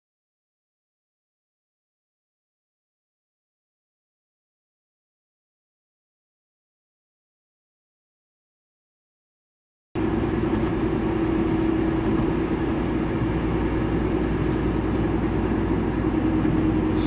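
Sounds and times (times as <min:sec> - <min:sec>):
vehicle engines running: 0:10.0 - 0:17.0.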